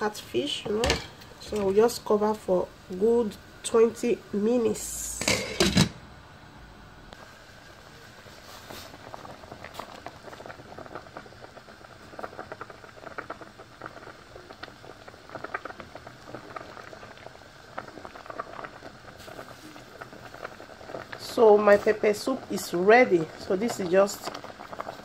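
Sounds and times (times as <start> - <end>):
soup bubbling in a pot: 7.1 - 25.0.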